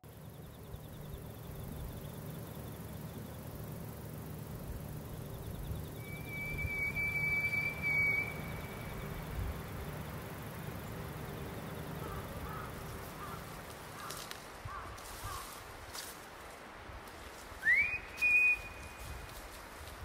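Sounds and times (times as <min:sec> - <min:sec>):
steady high pure tone: 0:00.1 - 0:13.9
faint low rumble: 0:00.1 - 0:17.5.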